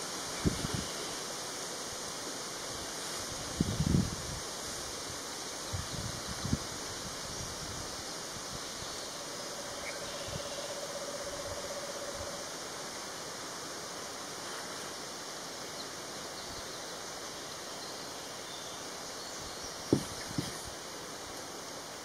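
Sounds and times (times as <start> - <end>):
steady background hiss: 0.0 - 22.0
screech owl trilling: 9.1 - 12.4.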